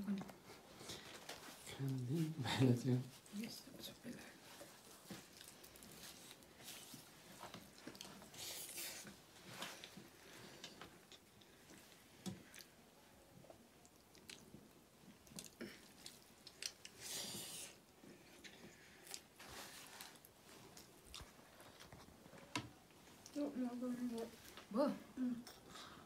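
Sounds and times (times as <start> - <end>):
chewing and mouth smacks: 5.0 - 6.5, 7.4 - 9.1, 13.8 - 17.0.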